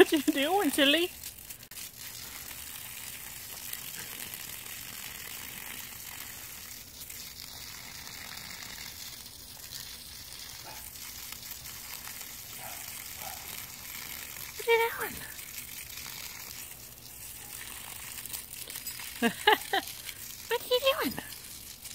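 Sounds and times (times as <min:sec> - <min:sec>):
garden hose spraying onto grass: 0:00.0 - 0:21.9.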